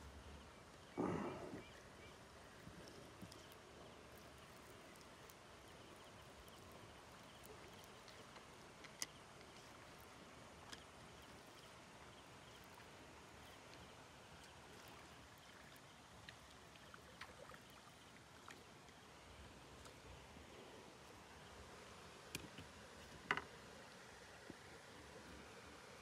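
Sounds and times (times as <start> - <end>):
faint outdoor ambience: 0.0 - 26.0
small clicks: 4.2 - 10.1.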